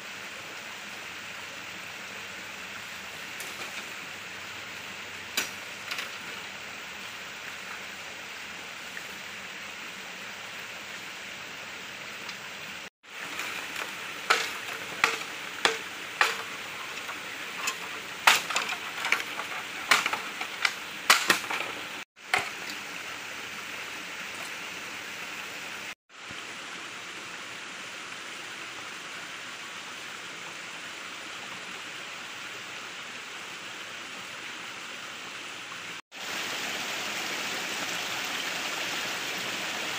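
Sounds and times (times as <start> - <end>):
stream flowing: 0.0 - 39.9
machete chopping bamboo: 13.2 - 17.1, 17.7 - 21.8.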